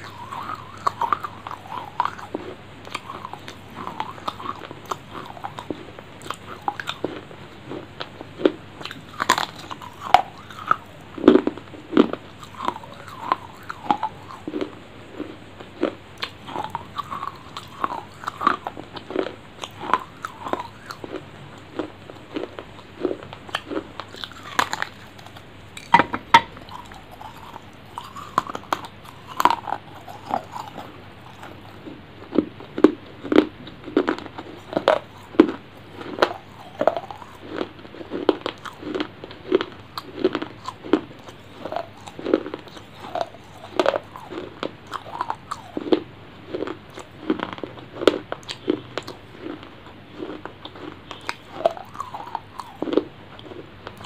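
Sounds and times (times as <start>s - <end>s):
wet chewing: 0.0s - 54.0s
biting into fruit: 21.8s - 46.0s.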